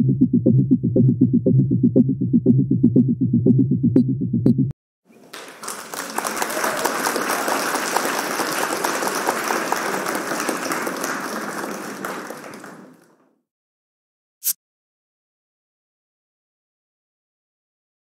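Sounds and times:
many hands clapping: 0:05.1 - 0:13.4.

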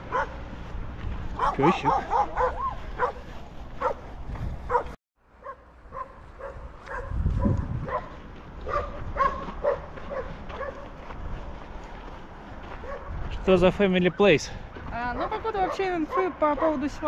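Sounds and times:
dog barking: 0:00.1 - 0:00.4, 0:01.4 - 0:04.1, 0:04.7 - 0:10.9, 0:12.8 - 0:13.2, 0:15.2 - 0:16.8.

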